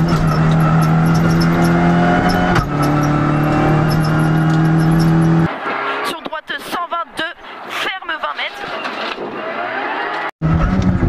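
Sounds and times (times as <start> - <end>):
car engine revving hard: 0.0 - 6.1, 10.4 - 11.0.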